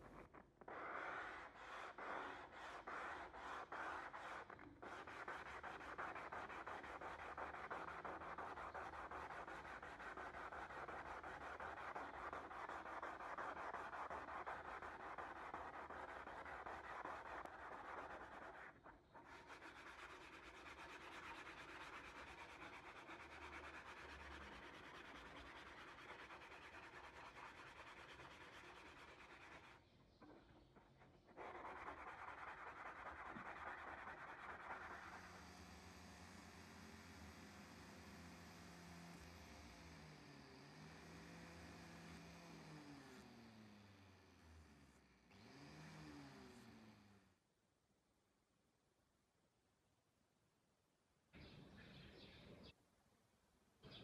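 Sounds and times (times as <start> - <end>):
pad rubbing on steel blade: 0.1 - 37.8.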